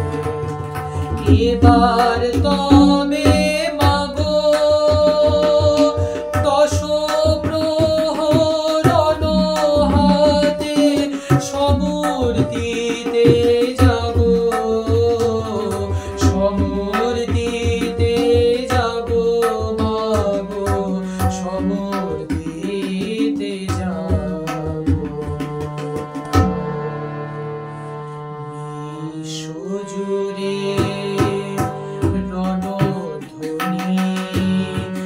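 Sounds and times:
drum rhythm: 0.0s - 26.4s
man singing devotional song: 0.0s - 26.9s, 28.4s - 35.0s
harmonium chords: 0.0s - 35.0s.

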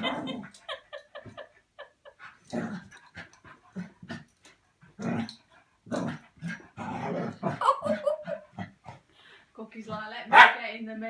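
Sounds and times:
dogs growling and whining: 0.0s - 0.7s, 5.0s - 9.0s.

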